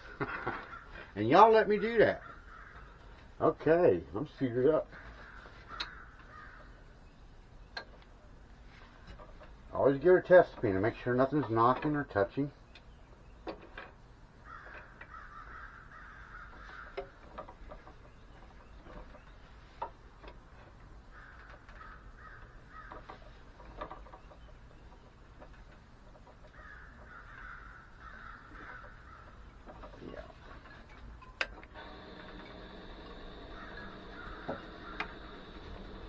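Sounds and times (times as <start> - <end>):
light clicks and knocks: 16.5 - 36.0
wood lathe motor whining: 31.4 - 36.0.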